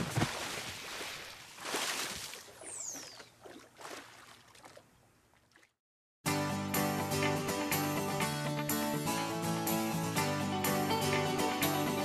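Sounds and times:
water splashing and churning: 0:00.0 - 0:05.8.

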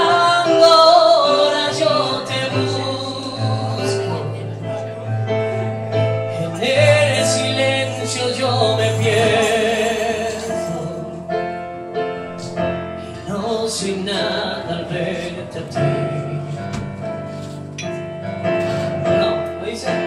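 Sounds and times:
man singing with vibrato: 0:00.0 - 0:05.4, 0:06.2 - 0:11.6, 0:12.5 - 0:17.1
piano chords: 0:00.0 - 0:20.0.

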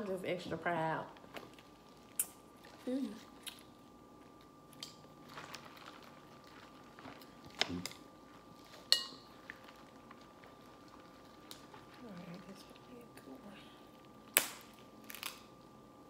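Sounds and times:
shells being cracked: 0:14.3 - 0:15.5.

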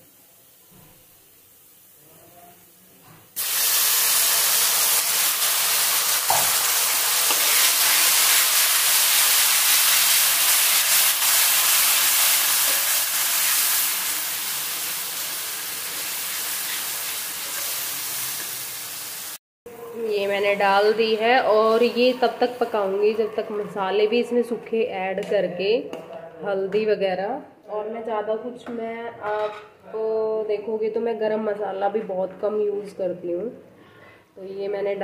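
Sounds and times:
tomato puree sizzling in oil: 0:03.4 - 0:19.4.

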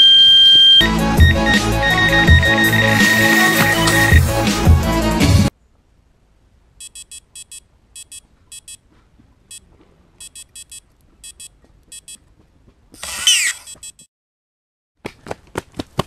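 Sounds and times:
bite alarm beeps: 0:00.0 - 0:04.4, 0:06.8 - 0:08.8, 0:10.2 - 0:12.2.

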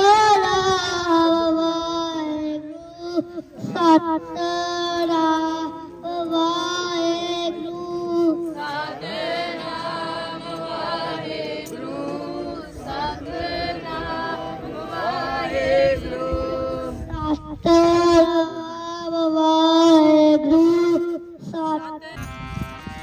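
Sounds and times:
group of voices chanting: 0:08.6 - 0:17.0.

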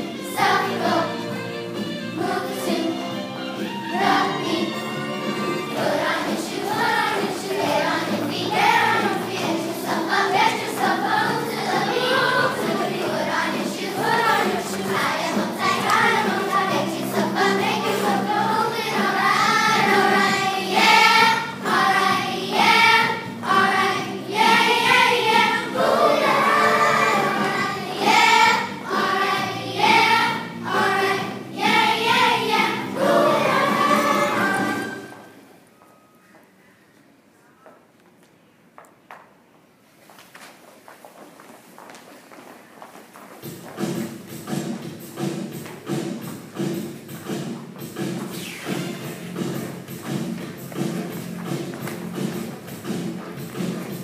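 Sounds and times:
children's chorus singing: 0:00.0 - 0:35.4
musical accompaniment: 0:00.0 - 0:35.9, 0:43.4 - 0:54.0.

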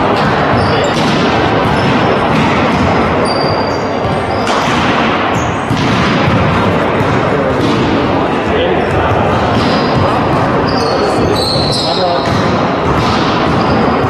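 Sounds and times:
sports hall noise: 0:00.0 - 0:14.0
volleyball hits: 0:00.0 - 0:14.0
shoes squeaking on court: 0:00.2 - 0:04.6, 0:09.5 - 0:12.4.

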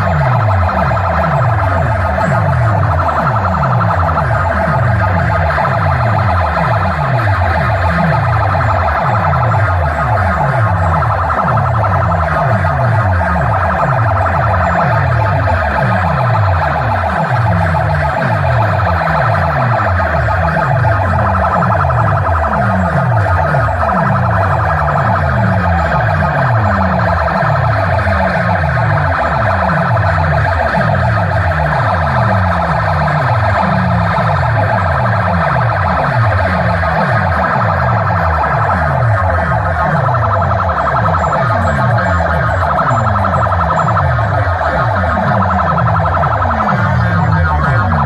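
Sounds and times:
siren-like wail: 0:00.0 - 0:48.0.

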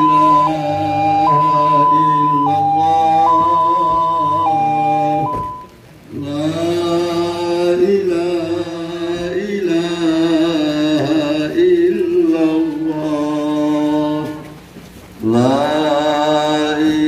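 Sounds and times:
voices chanting in unison: 0:00.0 - 0:05.6.

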